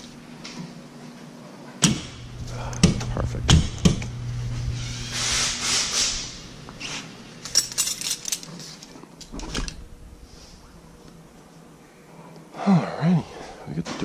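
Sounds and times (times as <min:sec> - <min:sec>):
metal wrenches clinking: 0:07.4 - 0:09.4.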